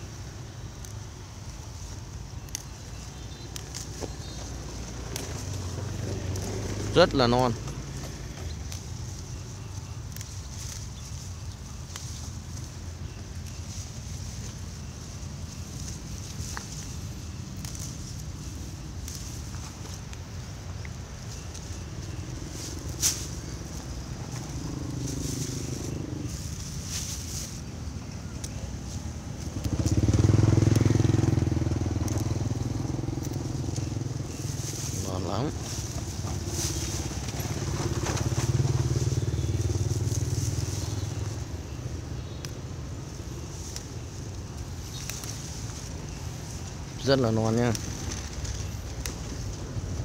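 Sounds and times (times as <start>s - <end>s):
leaves and plastic bag rustling: 0.0s - 50.0s
stem snapping: 2.4s - 5.5s, 32.0s - 32.4s, 42.4s - 42.6s, 43.7s - 45.8s, 47.7s - 49.5s
motor engine running low: 3.6s - 20.6s, 21.2s - 50.0s.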